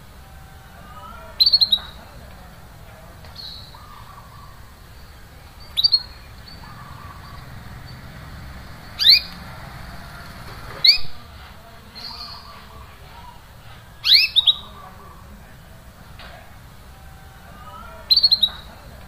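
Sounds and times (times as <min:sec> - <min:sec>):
canary chirping: 0:01.1 - 0:02.1, 0:03.3 - 0:11.2, 0:11.9 - 0:12.7, 0:14.0 - 0:15.2, 0:17.8 - 0:19.0.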